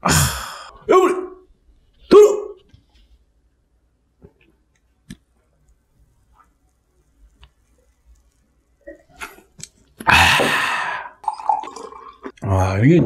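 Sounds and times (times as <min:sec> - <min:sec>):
person gulping beer: 0:08.8 - 0:12.4.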